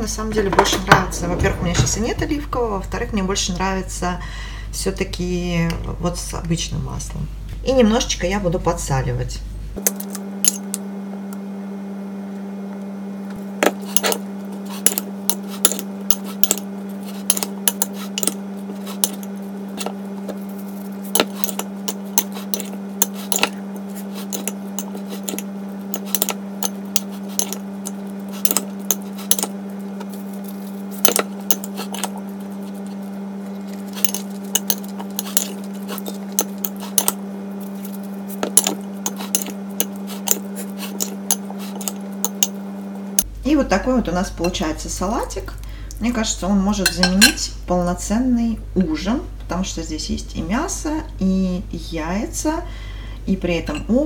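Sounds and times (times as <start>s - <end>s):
steady low hum: 0.0s - 54.0s
spoon scraping glass bowl: 13.6s - 42.6s.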